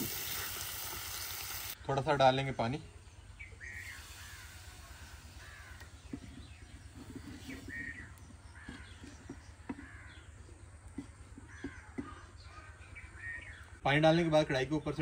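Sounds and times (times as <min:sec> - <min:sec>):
crows cawing: 0:04.0 - 0:06.3, 0:07.7 - 0:10.5, 0:11.4 - 0:13.6.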